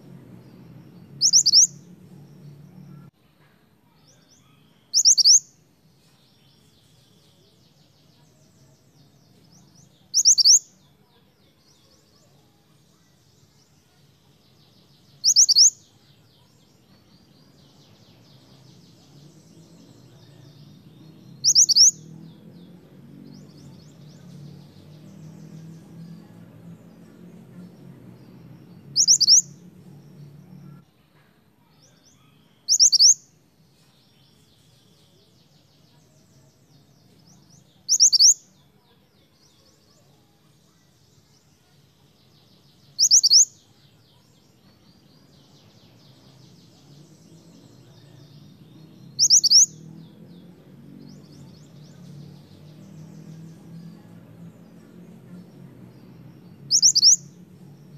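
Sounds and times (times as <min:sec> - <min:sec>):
faint soft bird twittering: 0:00.0 - 0:57.9
bird giving high double-note calls: 0:01.2 - 0:01.8, 0:05.0 - 0:05.4, 0:49.2 - 0:49.7.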